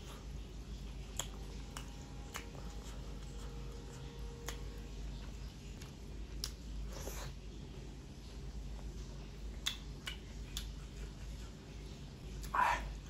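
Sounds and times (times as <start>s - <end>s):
wet mouth clicks and smacks: 1.1s - 3.5s, 4.4s - 4.7s, 5.8s - 6.6s, 9.5s - 11.6s.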